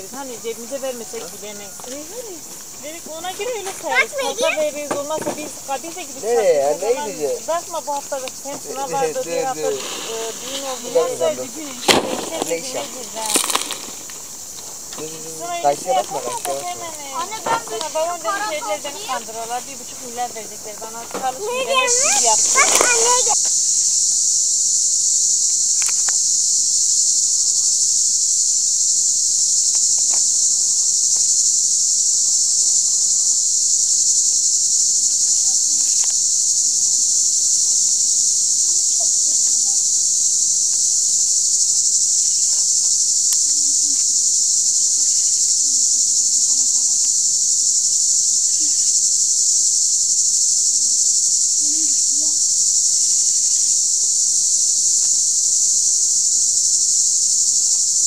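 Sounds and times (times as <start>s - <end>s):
insect chorus buzzing: 0.0s - 58.0s
faint knocks of work: 4.9s - 5.6s.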